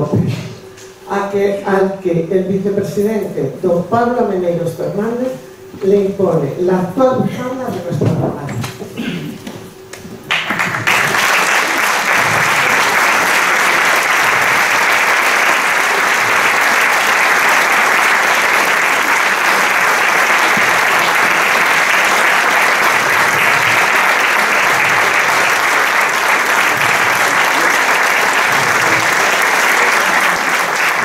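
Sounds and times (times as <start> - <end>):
audience applauding: 9.9 - 31.0.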